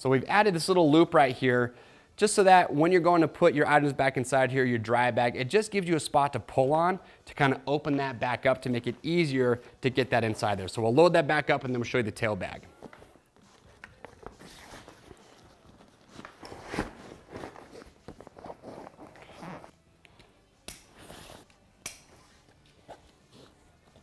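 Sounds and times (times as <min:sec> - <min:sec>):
nylon fabric rustling: 0:12.7 - 0:19.8.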